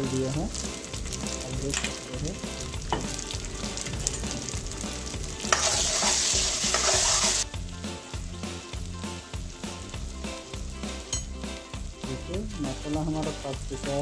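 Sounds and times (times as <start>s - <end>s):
paste sizzling in hot oil: 0.0s - 14.0s
spoon scraping a metal pan: 5.4s - 7.4s.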